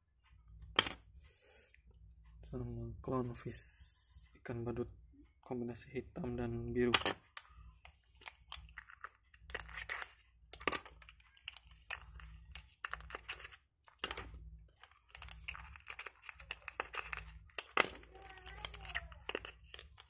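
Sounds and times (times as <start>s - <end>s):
faint low hum: 0.0s - 20.0s
plastic cases clicking: 8.2s - 20.0s.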